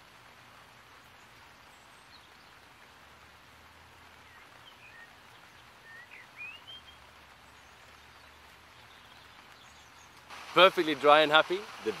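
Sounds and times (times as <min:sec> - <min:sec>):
outdoor background hiss: 0:00.0 - 0:12.0
faint bird chirps: 0:04.2 - 0:10.3.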